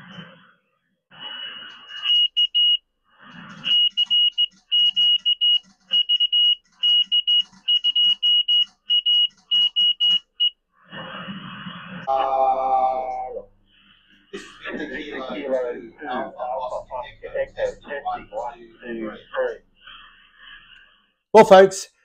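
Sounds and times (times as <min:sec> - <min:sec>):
morse code tone: 0:01.9 - 0:02.8, 0:03.6 - 0:10.6.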